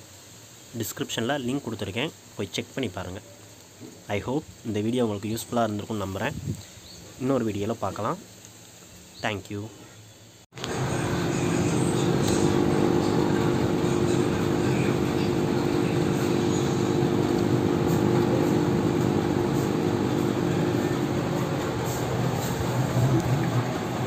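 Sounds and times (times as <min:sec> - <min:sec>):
aquarium air pump humming: 0:10.6 - 0:24.0.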